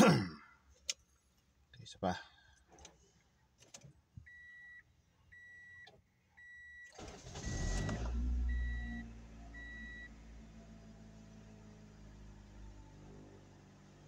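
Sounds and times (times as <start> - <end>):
dashboard warning chime beeps: 4.3 - 10.2
engine starter cranking: 6.8 - 8.9
car engine fast idle: 6.9 - 12.8.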